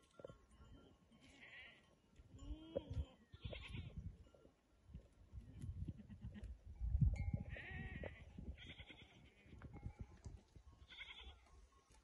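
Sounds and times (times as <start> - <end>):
goats bleating: 7.5 - 9.5, 10.8 - 11.4.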